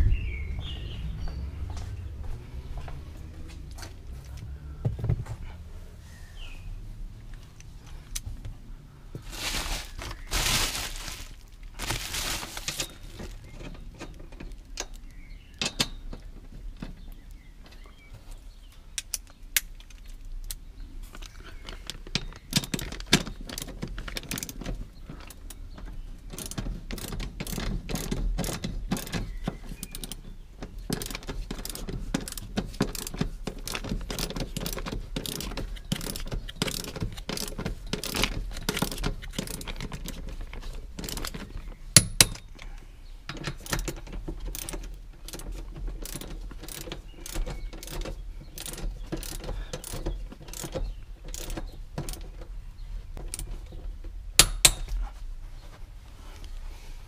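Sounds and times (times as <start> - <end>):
rustling: 5.2 - 14.8
ratchet wrench clicking: 26.3 - 30.3, 30.9 - 40.2, 41.0 - 41.4, 43.6 - 52.2.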